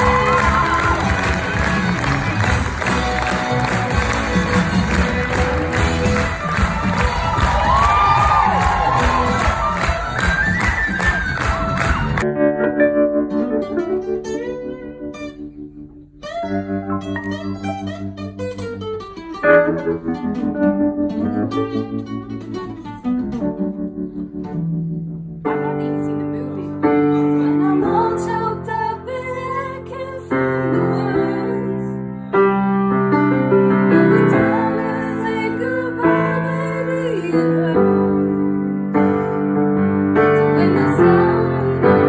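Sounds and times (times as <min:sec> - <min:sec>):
song with piano and singing: 0:00.0 - 0:12.3, 0:25.5 - 0:32.4, 0:33.2 - 0:42.0
plucked notes: 0:00.0 - 0:30.1.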